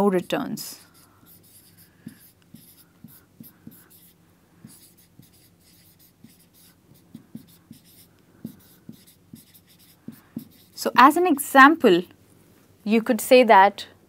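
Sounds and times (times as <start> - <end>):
marker writing on whiteboard: 0.0 - 11.0.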